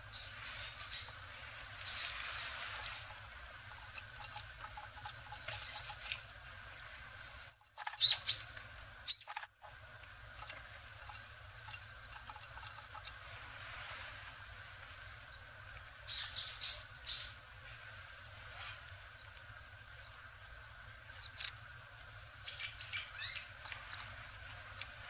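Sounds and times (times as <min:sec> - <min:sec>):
small birds chirping: 0:00.0 - 0:09.5, 0:15.2 - 0:24.9
bird splashing in water: 0:01.6 - 0:06.3, 0:07.4 - 0:14.2.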